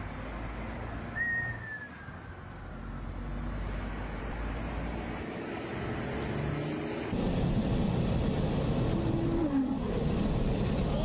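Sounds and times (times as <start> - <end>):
vehicle rumbling in traffic: 0.0 - 11.0
short high whistle: 1.2 - 2.3.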